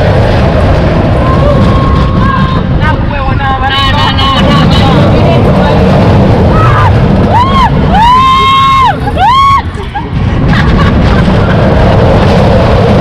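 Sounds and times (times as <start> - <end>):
wind noise on microphone: 0.0 - 13.0
riders screaming: 6.4 - 9.8.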